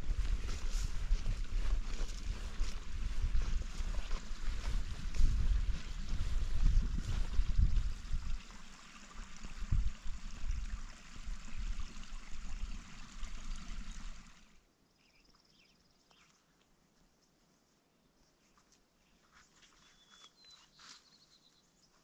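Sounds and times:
wind buffeting microphone: 0.0s - 14.2s
faint bird chirps: 14.8s - 17.4s, 18.1s - 22.0s.

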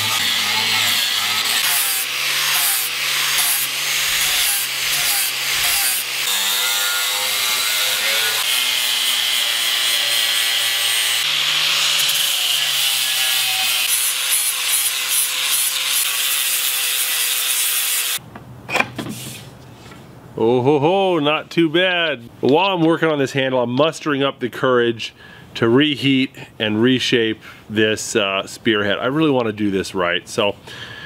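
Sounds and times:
angle grinder sanding wood: 0.0s - 18.2s.

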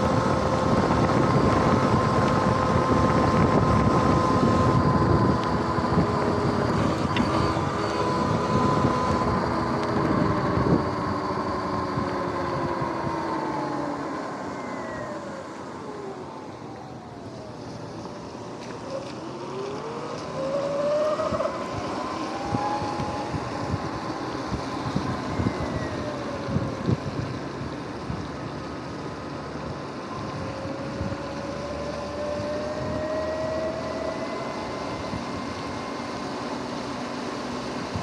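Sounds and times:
wind on microphone: 0.0s - 13.6s, 20.4s - 28.4s, 30.1s - 36.0s
electric motor whine: 0.0s - 38.0s.

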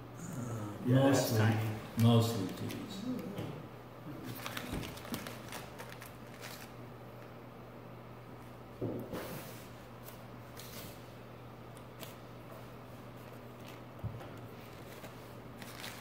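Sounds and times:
low room hum: 0.0s - 16.0s
paper rustling: 4.2s - 7.3s, 13.2s - 16.0s.

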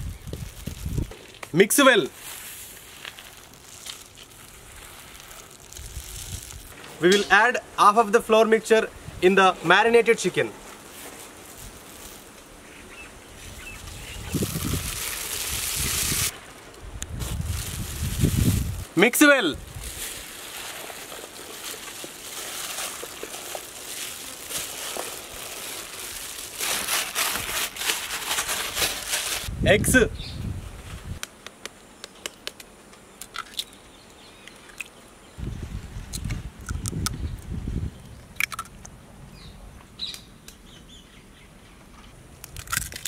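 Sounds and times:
plastic gloves crinkling: 0.0s - 6.8s, 10.6s - 12.7s, 13.8s - 19.0s, 19.6s - 29.5s.

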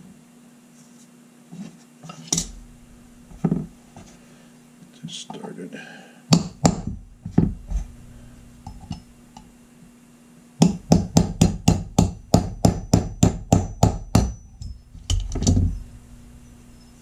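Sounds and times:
hammer tapping punch on metal: 6.3s - 7.6s, 10.6s - 15.7s.

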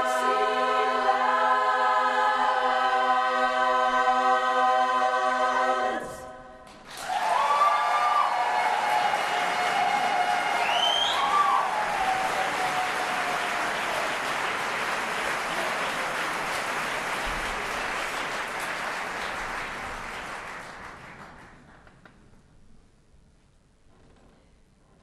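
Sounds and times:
audience applause: 6.7s - 21.9s.

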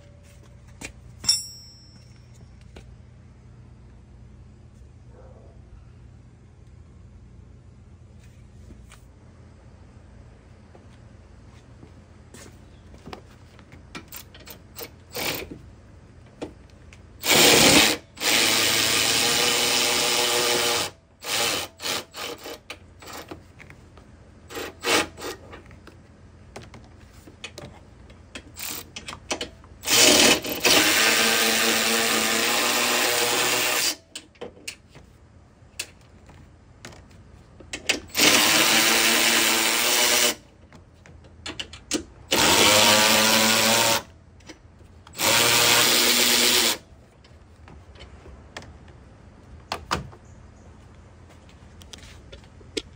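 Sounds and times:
cordless ratchet motor whine: 38.0s - 40.4s, 42.3s - 44.1s.

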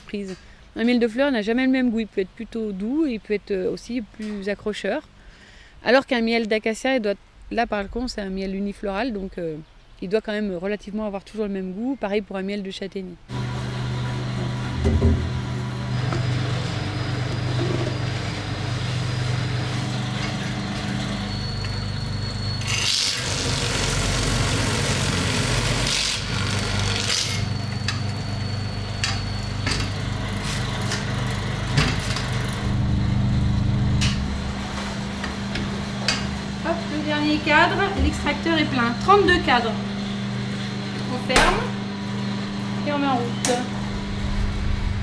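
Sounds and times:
steady machine hum: 13.3s - 45.0s.

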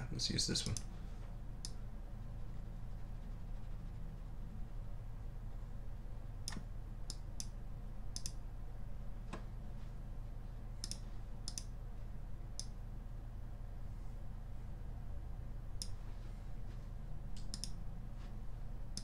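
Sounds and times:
steady low hum: 0.0s - 19.0s
computer mouse clicking: 0.6s - 0.9s, 6.4s - 8.4s, 10.8s - 11.7s, 17.4s - 17.8s.

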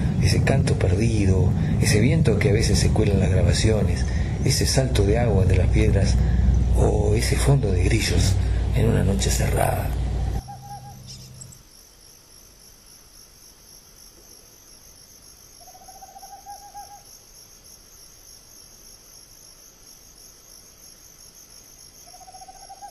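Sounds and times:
night insects chirring: 0.0s - 22.9s
owl trill: 10.4s - 11.5s, 15.6s - 17.1s, 22.0s - 22.9s.

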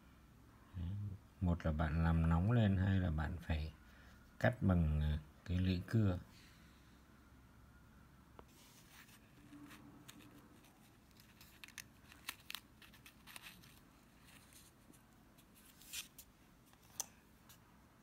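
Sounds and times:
paper packet crinkling: 8.9s - 17.0s.

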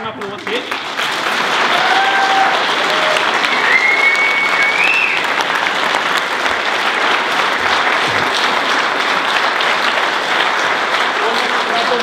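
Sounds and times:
audience applauding: 0.0s - 12.0s
high whistle from crowd: 3.5s - 5.3s.

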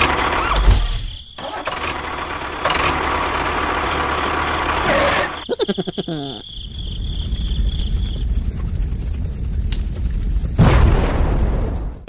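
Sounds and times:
tractor engine running: 0.0s - 0.5s, 1.4s - 5.6s.

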